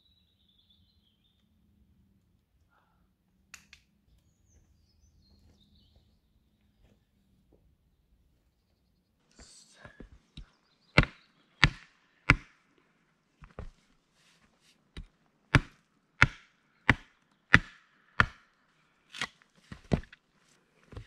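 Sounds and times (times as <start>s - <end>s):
hatchet chopping wood: 11.0s - 12.6s, 13.4s - 13.7s, 14.9s - 18.5s, 19.1s - 20.2s.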